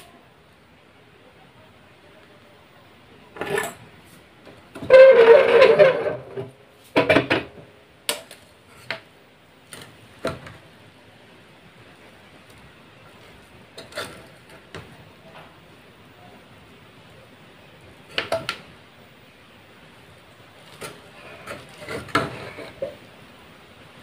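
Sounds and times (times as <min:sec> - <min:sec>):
spoon scraping metal pot: 0:13.8 - 0:14.6, 0:20.7 - 0:23.0.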